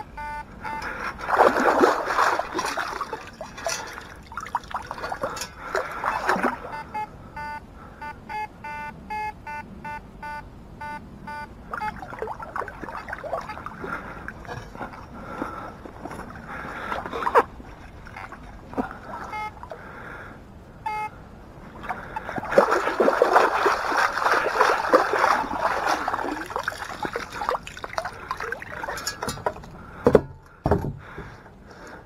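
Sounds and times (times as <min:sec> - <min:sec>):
metal detector beeps: 0:00.0 - 0:01.1, 0:06.1 - 0:12.0, 0:19.3 - 0:19.6, 0:20.8 - 0:21.2
water splashing and sloshing: 0:00.6 - 0:07.0, 0:11.7 - 0:20.3, 0:21.6 - 0:32.0.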